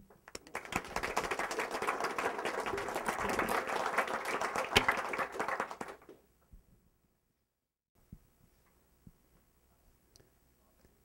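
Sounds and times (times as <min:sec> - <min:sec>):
audience applauding: 0:00.4 - 0:06.2.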